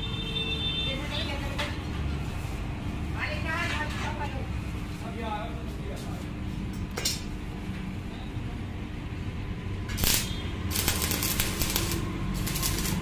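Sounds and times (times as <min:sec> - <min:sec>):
welding arc crackling and sizzling: 0:09.9 - 0:13.0.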